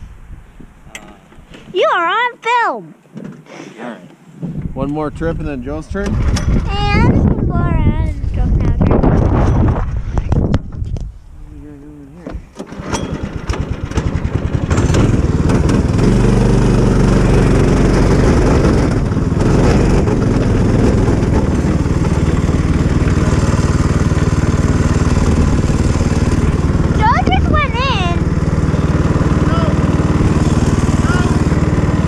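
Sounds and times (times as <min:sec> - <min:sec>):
go-kart engine running: 0:06.0 - 0:07.8, 0:12.7 - 0:32.0.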